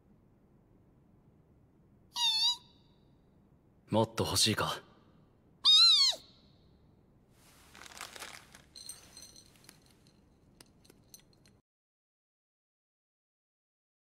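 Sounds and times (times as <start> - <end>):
cartoon hedgehog squeak: 2.1 - 2.8, 5.6 - 6.4
rustling and crunching: 7.4 - 11.4.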